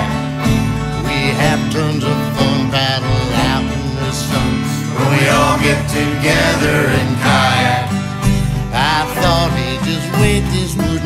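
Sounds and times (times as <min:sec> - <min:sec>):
country song with plucked guitar: 0:00.0 - 0:11.0.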